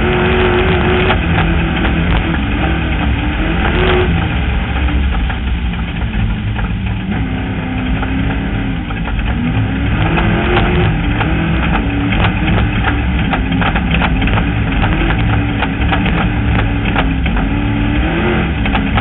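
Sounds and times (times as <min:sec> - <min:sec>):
off-road vehicle engine: 0:00.0 - 0:19.0
clattering knocks from rough ground: 0:07.9 - 0:17.8.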